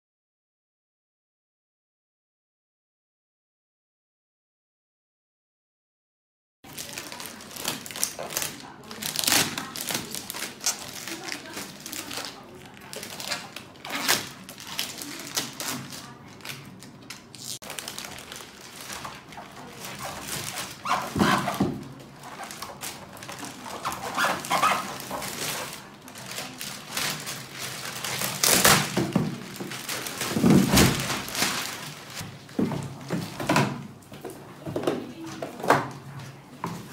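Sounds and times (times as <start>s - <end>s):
plastic wrapping crinkling: 6.7s - 33.7s.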